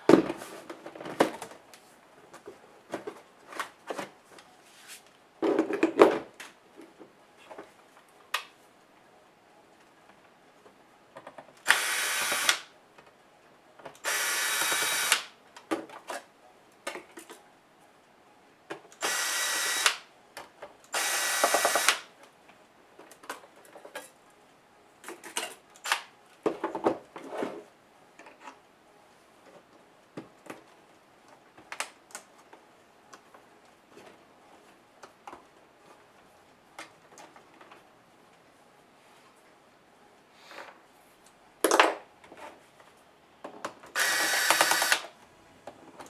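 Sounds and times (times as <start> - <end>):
cordless drill spinning: 11.7 - 12.6, 14.0 - 15.2, 19.0 - 20.0, 20.9 - 22.0, 44.0 - 45.1.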